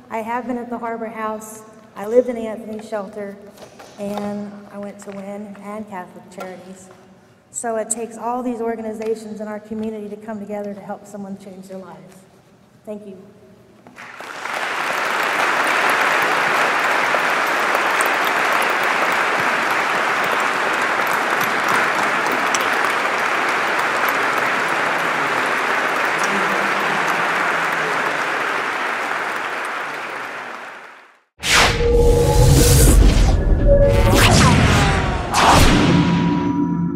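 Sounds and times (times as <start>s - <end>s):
audience applauding: 14.0s - 31.2s.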